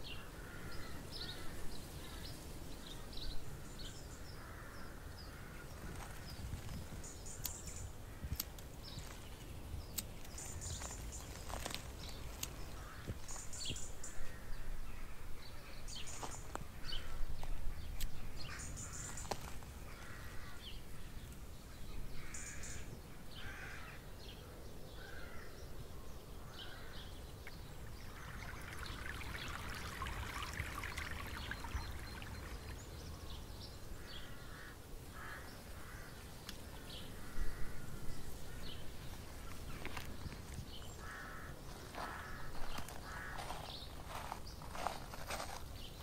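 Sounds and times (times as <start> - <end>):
birds calling: 0.0 - 46.0
fountain pump splashing water: 27.8 - 33.3.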